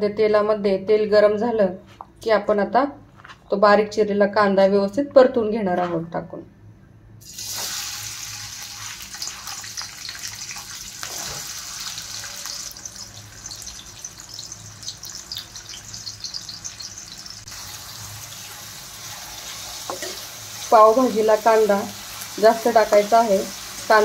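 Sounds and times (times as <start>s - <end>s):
onion sizzling in hot oil: 7.2s - 24.0s.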